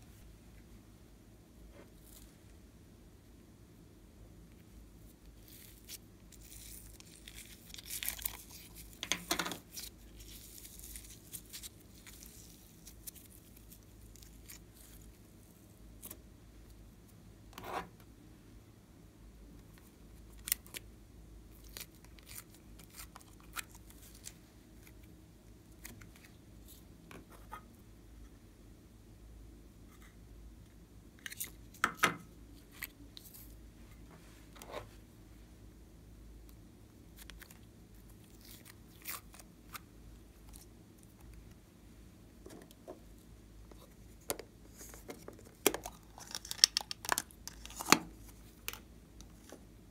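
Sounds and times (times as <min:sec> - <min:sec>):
crackly handling noises: 0:04.5 - 0:18.1, 0:21.5 - 0:27.8, 0:36.4 - 0:41.7, 0:42.4 - 0:49.7.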